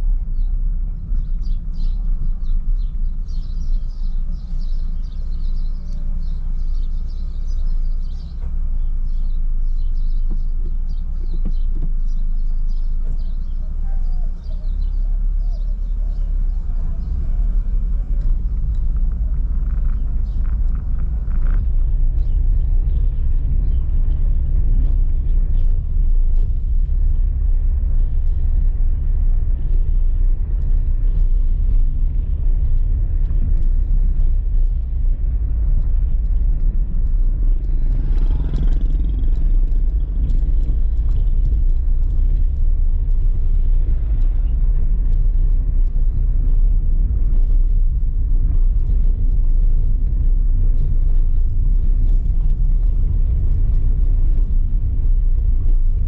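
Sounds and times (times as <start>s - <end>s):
tyre and road rumble: 0.0s - 56.0s.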